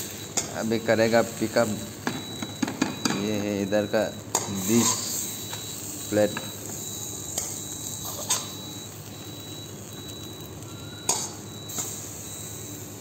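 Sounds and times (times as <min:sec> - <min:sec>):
dishes and utensils clinking: 0:07.4 - 0:08.6.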